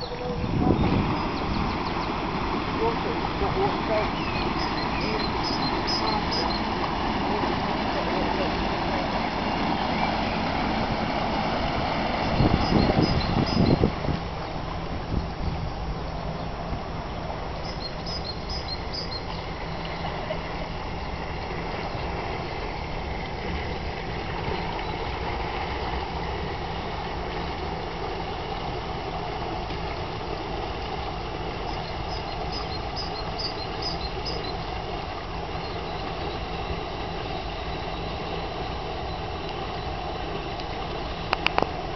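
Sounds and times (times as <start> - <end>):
boat engine running: 0.0 - 41.9
water noise: 0.0 - 41.9
wind: 0.0 - 41.9
small bird chirping: 3.9 - 6.7, 12.4 - 13.8, 17.6 - 19.4, 31.7 - 34.6.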